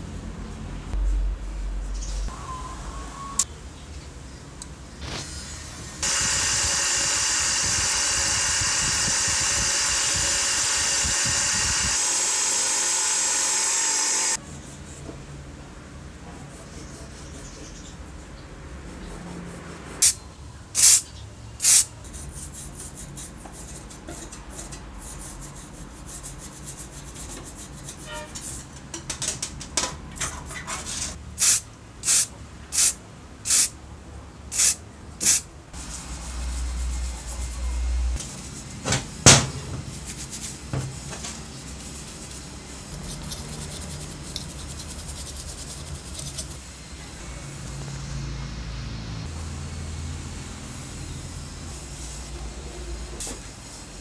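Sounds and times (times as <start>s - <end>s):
grinding wheel on metal: 6.0s - 14.4s
aerosol spray can hissing: 21.6s - 21.8s, 31.4s - 33.7s.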